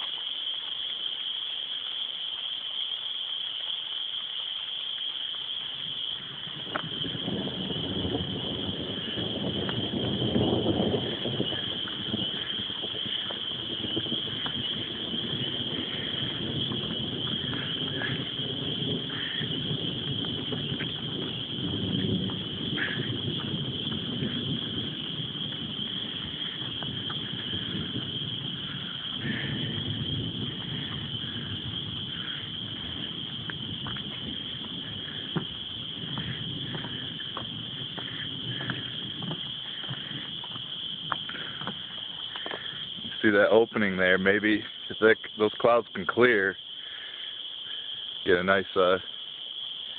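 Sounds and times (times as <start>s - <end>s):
crickets chirping: 0.0s - 49.9s
low rumbling noise: 6.2s - 44.4s
chorus of small calling animals: 10.6s - 21.5s, 22.5s - 33.4s.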